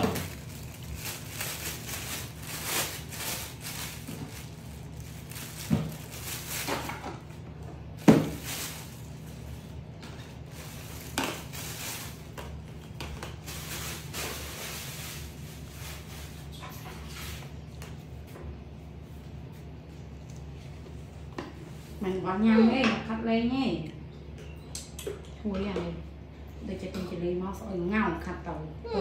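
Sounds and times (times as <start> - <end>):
plastic bag crinkling: 0.0 - 7.4, 8.0 - 17.4
steady low hum: 0.0 - 29.0.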